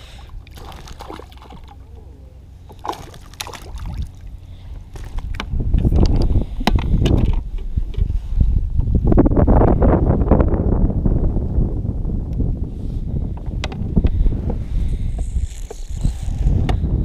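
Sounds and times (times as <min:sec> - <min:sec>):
low rumbling microphone noise: 0:00.0 - 0:17.0
fish splashing at surface: 0:00.5 - 0:01.8, 0:02.7 - 0:04.2.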